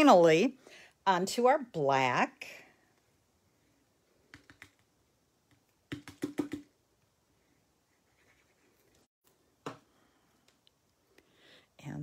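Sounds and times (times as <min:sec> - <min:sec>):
hands tapping paper on card: 0:05.5 - 0:06.7.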